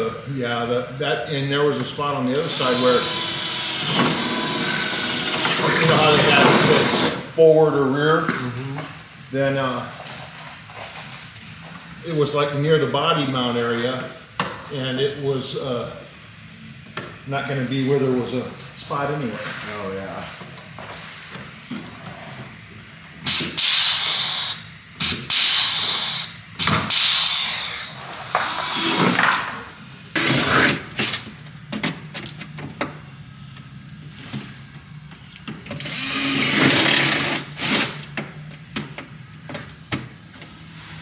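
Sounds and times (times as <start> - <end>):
power drill bursts: 2.4 - 7.3, 23.3 - 29.2, 35.8 - 38.0.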